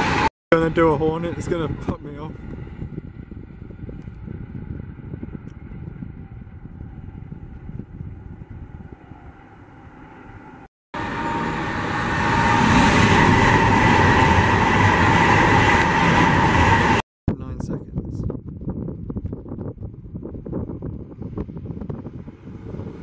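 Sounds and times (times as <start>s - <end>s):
high-speed train rushing past: 0.0s - 1.9s, 2.6s - 17.0s
distant train rumbling: 2.5s - 17.0s.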